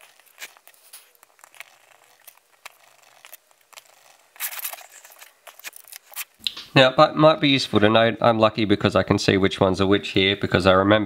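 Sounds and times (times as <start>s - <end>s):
wires and frame rustling: 0.0s - 6.5s.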